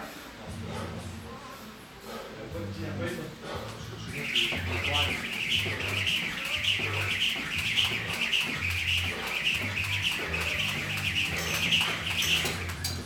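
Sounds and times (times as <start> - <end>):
jump rope swishing: 3.7 - 13.0.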